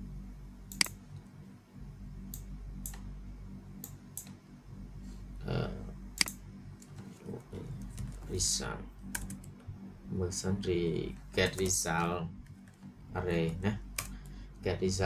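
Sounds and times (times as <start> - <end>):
steady low hum: 0.0 - 15.0
sharp computer clicks: 0.7 - 1.0, 2.3 - 3.1, 3.8 - 4.4, 6.2 - 7.0, 9.1 - 9.7.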